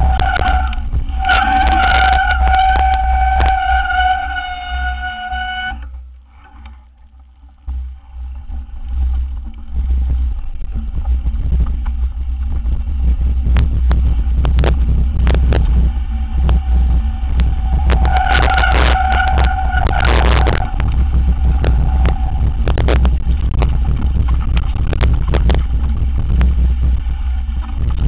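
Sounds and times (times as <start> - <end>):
high squeal: 0.0 - 6.0, 16.5 - 23.1
bike rattling over bumps: 0.0 - 28.0
wind and tyres rumbling: 0.0 - 28.0.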